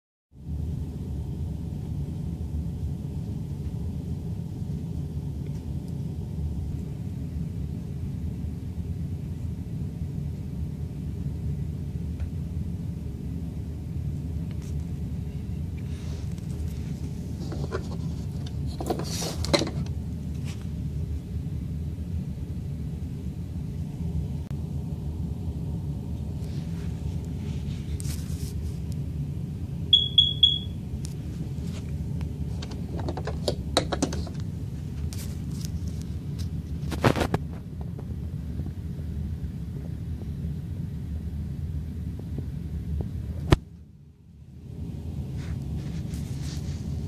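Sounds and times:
clicks and rattles: 32.6s - 34.4s.

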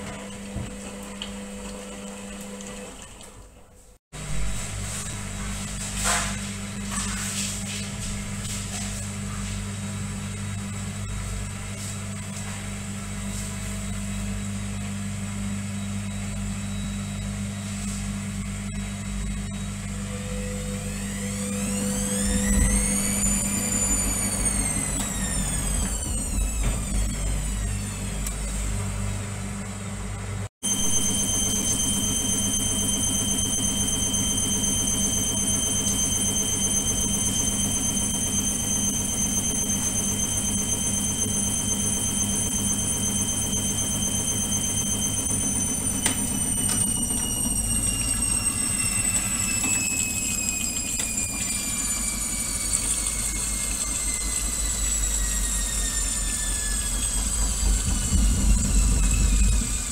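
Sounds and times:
washing machine motor whining: 0.0s - 59.9s
washing machine drum rumbling: 57.2s - 59.9s.

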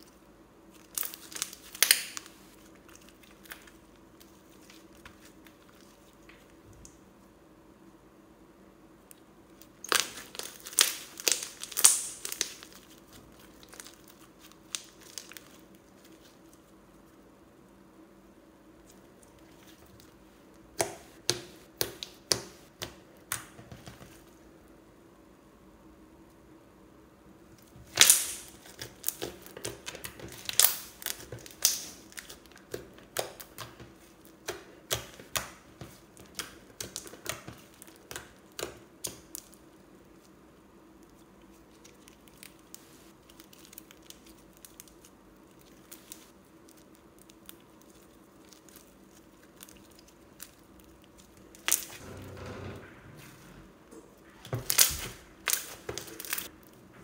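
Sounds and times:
slime squishing with sticky pops: 9.1s - 16.7s, 18.8s - 24.2s, 27.6s - 52.0s, 54.2s - 56.8s.

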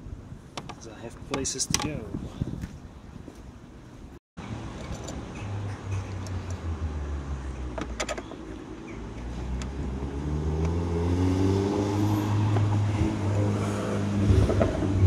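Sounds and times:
vehicle engine revving: 9.2s - 15.0s.

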